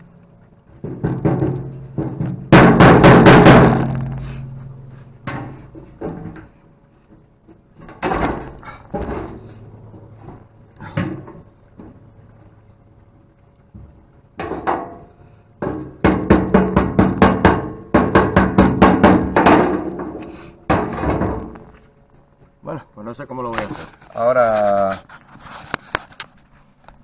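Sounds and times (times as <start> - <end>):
metal-on-metal knocking: 0.8 - 4.2, 15.6 - 21.5.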